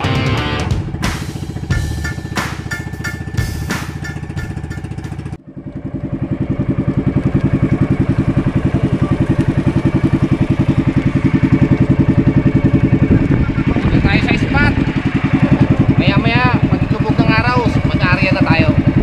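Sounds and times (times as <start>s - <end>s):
small engine pulsing: 0.0s - 19.0s.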